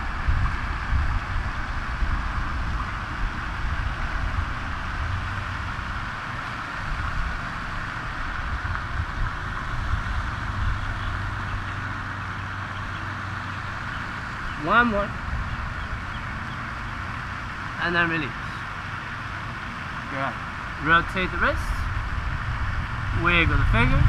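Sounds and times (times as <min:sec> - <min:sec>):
constant hiss: 0:00.0 - 0:24.0
uneven low rumble: 0:21.6 - 0:24.0.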